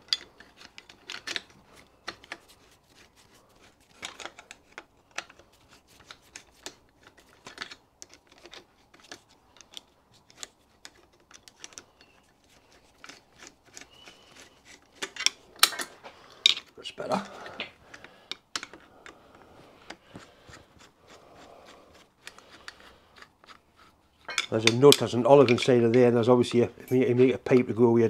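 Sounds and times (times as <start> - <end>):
screwdriver clicking on metal screw: 0.0 - 2.8, 3.6 - 16.7.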